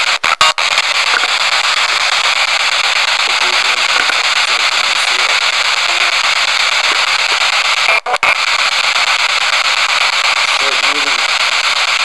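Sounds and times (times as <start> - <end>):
loud radio static hiss: 0.0 - 12.0.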